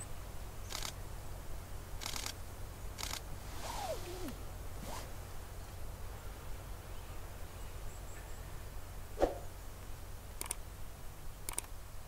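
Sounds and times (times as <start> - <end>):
sharp double clicks: 10.4 - 10.6, 11.5 - 11.8.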